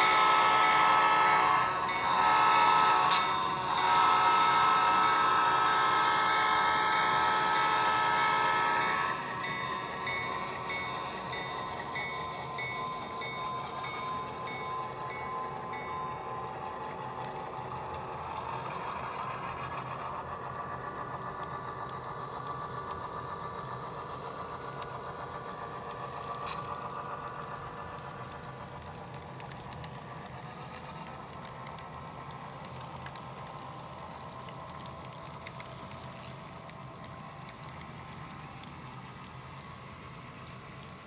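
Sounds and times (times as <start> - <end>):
model train rolling rumble: 0.0 - 41.0
high steady tones: 7.6 - 18.5.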